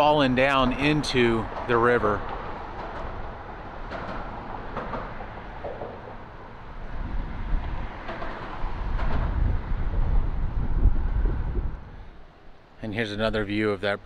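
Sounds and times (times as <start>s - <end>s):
low rumble: 8.7s - 12.1s.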